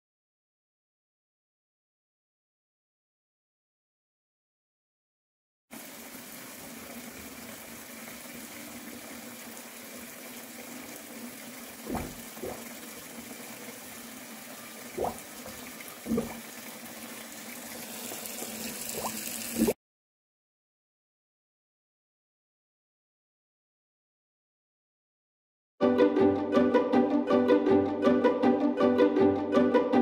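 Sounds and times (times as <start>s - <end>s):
tap running into sink: 11.8s - 12.8s, 15.0s - 16.5s
short dull knocks: 11.9s - 12.6s.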